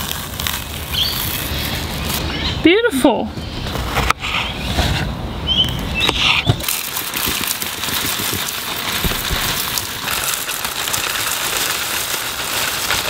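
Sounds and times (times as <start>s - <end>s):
muesli pouring into bowl: 6.6s - 13.0s.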